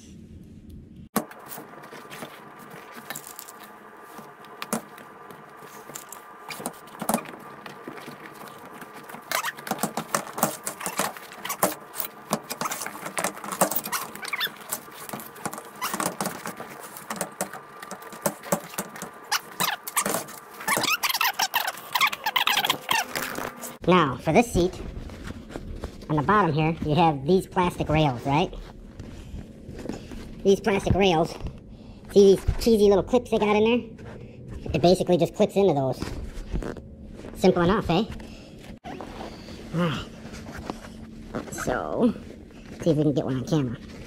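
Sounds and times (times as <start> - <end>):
faint steady hum: 0.0 - 44.0
fabric rustling: 1.3 - 30.5, 38.1 - 44.0.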